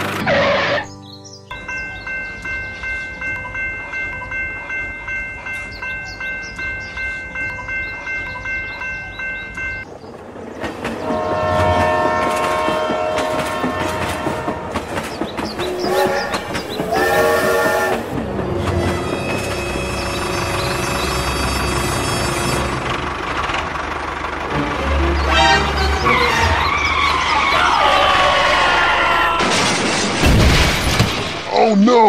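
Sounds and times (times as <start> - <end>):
level crossing warning bell: 1.5 - 9.9
train wheels rumbling and clicking: 1.6 - 29.8
train horn: 11.0 - 14.9, 15.6 - 20.5, 24.7 - 26.7.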